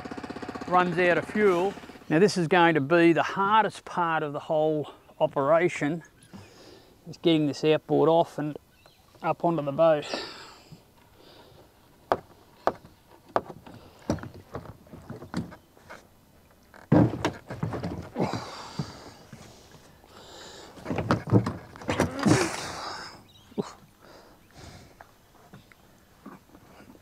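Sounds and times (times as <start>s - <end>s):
outboard motor handling knocks: 12.1s - 16.0s, 16.6s - 19.8s, 20.8s - 22.6s.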